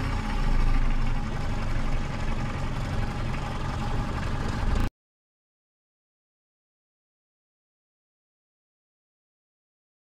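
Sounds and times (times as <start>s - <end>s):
outboard motor idling: 0.0s - 4.9s.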